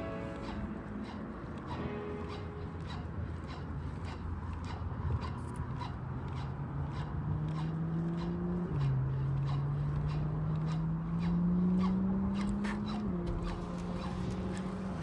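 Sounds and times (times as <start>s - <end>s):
steady low drone: 0.0s - 6.7s, 13.2s - 15.0s.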